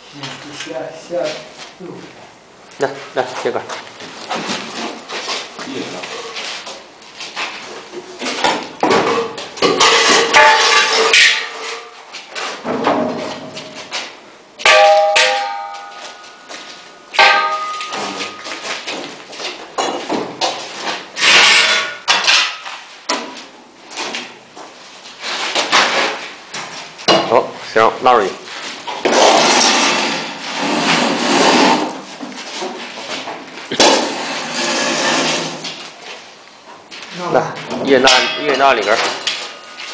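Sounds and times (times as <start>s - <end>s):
steel rails clanking on concrete: 8.2s - 13.8s, 14.6s - 23.3s, 37.7s - 39.9s.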